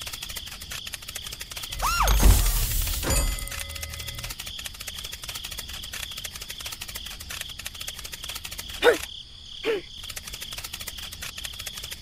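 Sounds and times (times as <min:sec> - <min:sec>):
insect chirring trill: 0:00.0 - 0:12.0
short falling squeaks: 0:01.6 - 0:04.3.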